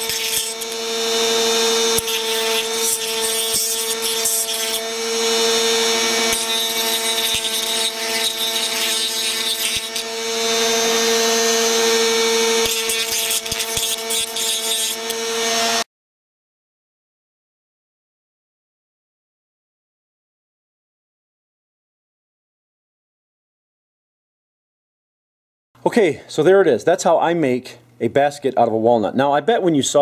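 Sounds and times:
bit grinding shell: 0.0 - 15.8
rotary tool whining: 0.0 - 15.9.

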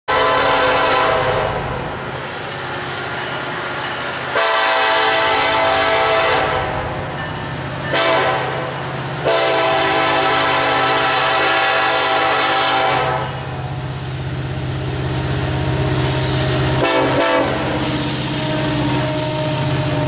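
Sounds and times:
locomotive air horn blasts: 0.1 - 1.8, 4.3 - 6.8, 7.9 - 13.6, 16.0 - 19.9.

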